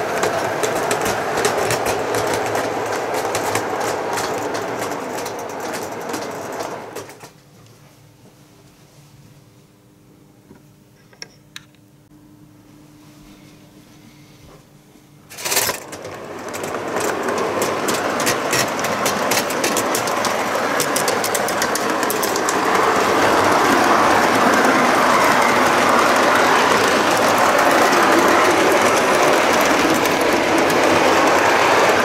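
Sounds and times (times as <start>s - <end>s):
model train wheels rattling: 0.0s - 7.3s, 15.3s - 32.0s.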